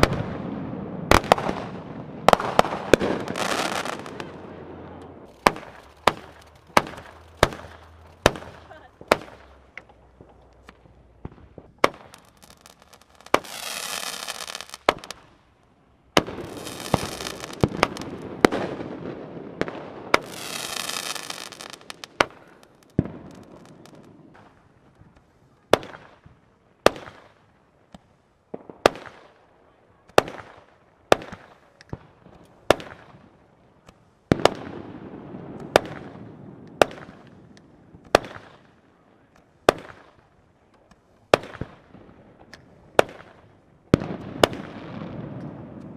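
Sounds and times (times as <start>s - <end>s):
fireworks bangs: 0.0s - 15.5s, 16.1s - 27.5s, 30.1s - 45.9s
fireworks hissing: 2.3s - 15.3s, 16.2s - 18.5s, 20.1s - 24.1s.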